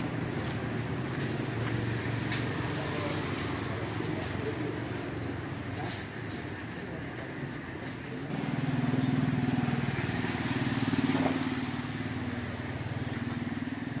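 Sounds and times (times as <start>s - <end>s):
small motorcycle engine running: 8.3s - 14.0s.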